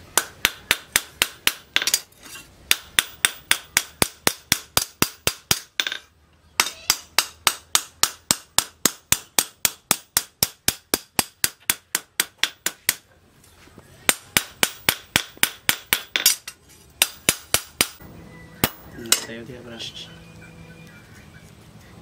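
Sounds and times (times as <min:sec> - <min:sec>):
hammer striking metal on anvil: 0:00.1 - 0:02.1, 0:02.7 - 0:13.0, 0:14.1 - 0:18.0, 0:18.6 - 0:19.4.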